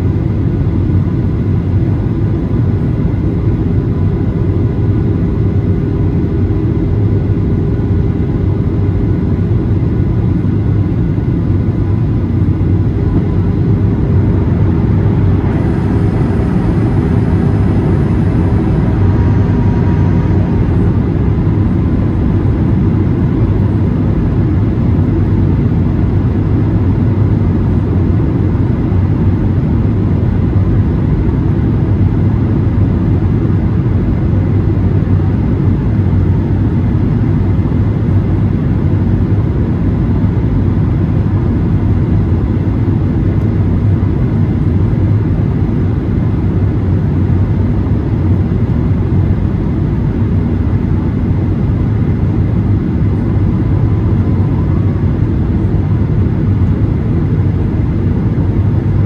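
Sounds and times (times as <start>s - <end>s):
aircraft engine hum: 0.0s - 59.0s
rushing airflow: 12.2s - 24.6s.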